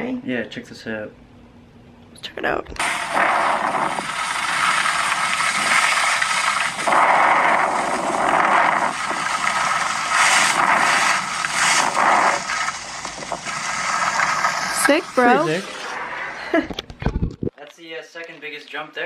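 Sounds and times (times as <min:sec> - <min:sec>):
skis scraping over snow: 0:04.7 - 0:15.8.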